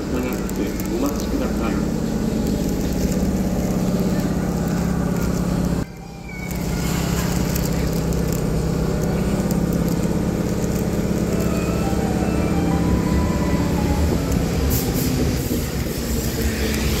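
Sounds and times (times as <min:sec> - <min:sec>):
electric train rumbling: 0:00.0 - 0:17.0.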